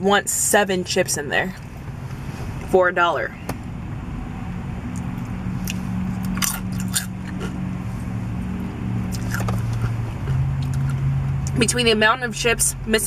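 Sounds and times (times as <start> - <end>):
steady low hum: 0.0 - 13.0
chips being crunched and chewed: 5.7 - 7.6, 9.1 - 11.0.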